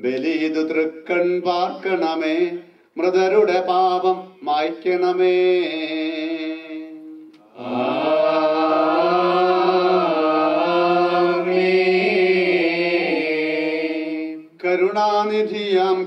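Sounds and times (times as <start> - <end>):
person chanting a hymn: 0.0 - 16.0.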